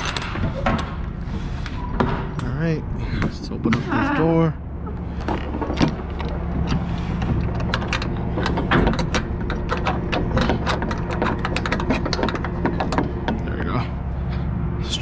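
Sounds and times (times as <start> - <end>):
metal latch clicking and clanking: 0.0 - 1.1, 5.2 - 13.7
low engine hum: 2.3 - 15.0.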